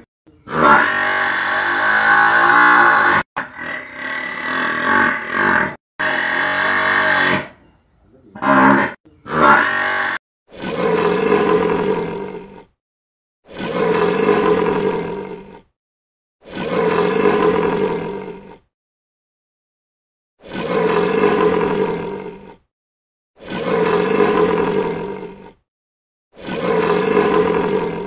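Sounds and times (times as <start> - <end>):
lion roaring: 0.5 - 7.5, 8.4 - 12.7, 13.5 - 15.7, 16.4 - 18.7, 20.4 - 22.6, 23.4 - 25.6, 26.4 - 28.0
buffalo calling: 8.3 - 10.2.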